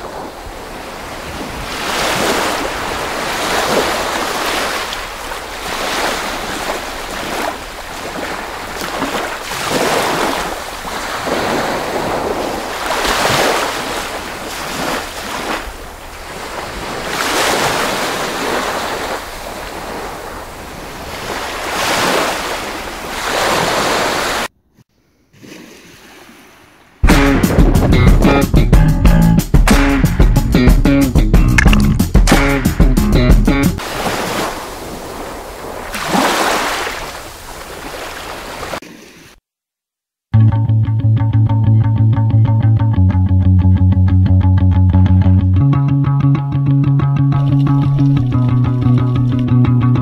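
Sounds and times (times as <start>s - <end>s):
sea waves washing on shore: 0.0s - 24.5s, 33.8s - 39.4s.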